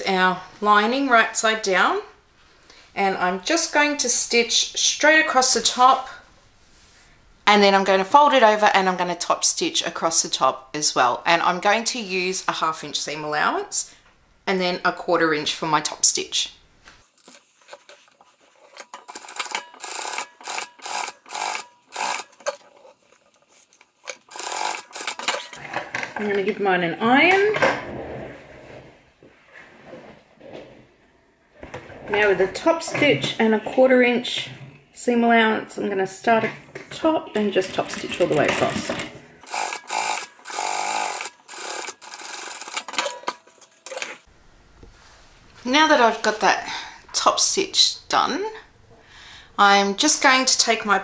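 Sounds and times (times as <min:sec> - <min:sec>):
sewing machine stitching: 0:19.1 - 0:22.8, 0:24.1 - 0:25.6, 0:38.2 - 0:44.2.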